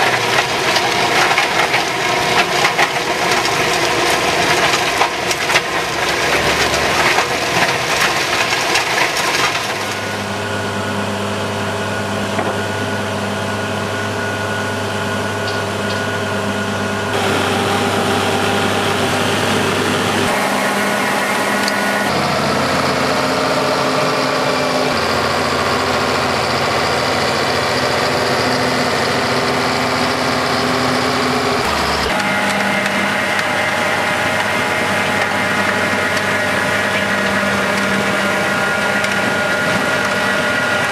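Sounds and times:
rock clattering through crusher: 0:00.0 - 0:10.3
tractor engine running: 0:00.0 - 0:40.9.

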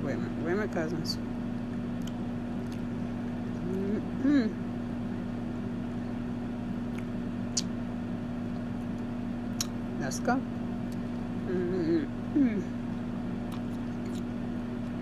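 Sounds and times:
steady low hum: 0:00.0 - 0:15.0
chewing and lip-smacking: 0:01.7 - 0:03.0, 0:06.8 - 0:07.7, 0:08.4 - 0:09.8, 0:12.9 - 0:15.0
person humming: 0:03.6 - 0:04.6, 0:11.4 - 0:12.8.

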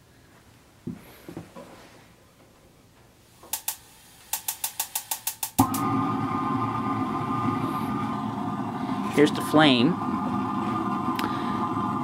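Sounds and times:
spark igniter clicking: 0:03.4 - 0:05.8
gas burner roaring with whistle: 0:03.4 - 0:12.0.

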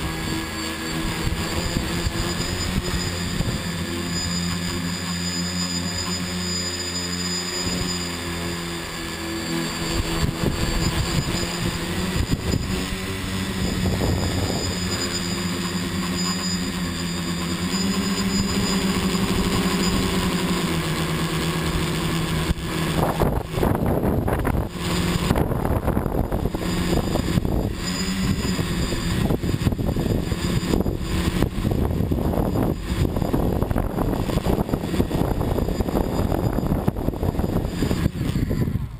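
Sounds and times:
drone propellers whirring: 0:00.0 - 0:38.9
wind buffeting microphone: 0:01.0 - 0:04.0, 0:09.9 - 0:15.5, 0:22.2 - 0:38.9.

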